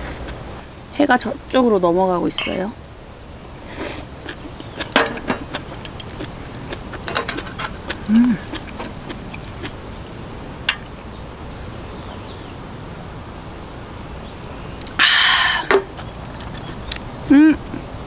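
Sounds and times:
tableware clinking: 7.0 - 7.8
person humming: 8.0 - 8.5, 17.3 - 17.8.

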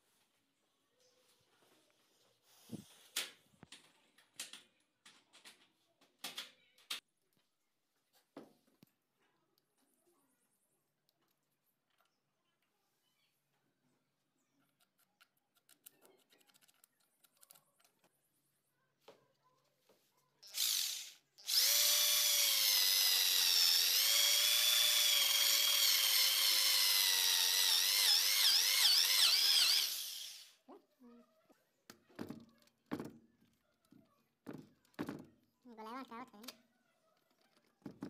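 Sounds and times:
electric drill boring into wood: 20.4 - 30.6.

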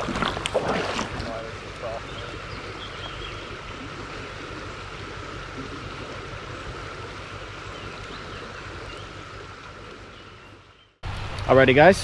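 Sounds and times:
water rushing over stones: 0.0 - 2.0.

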